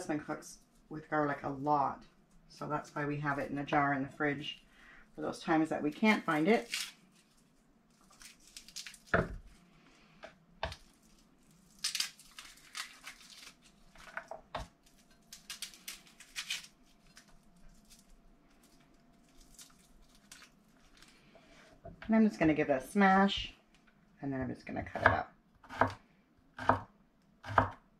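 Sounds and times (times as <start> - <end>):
garlic skins crackling: 5.2 - 10.0, 10.6 - 21.6.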